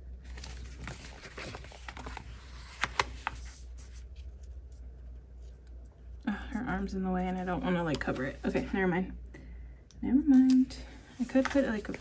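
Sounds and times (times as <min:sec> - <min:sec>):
low steady hum: 0:00.0 - 0:12.0
paper pages rustling: 0:00.2 - 0:05.7, 0:10.4 - 0:12.0.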